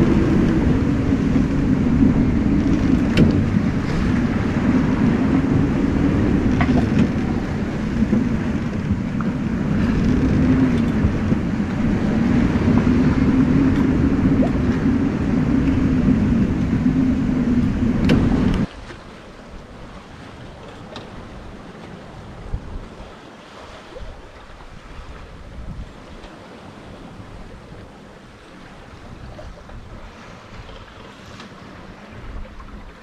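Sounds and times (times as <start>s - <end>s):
water rushing past a hull: 0.0s - 33.0s
wind buffeting microphone: 0.0s - 33.0s.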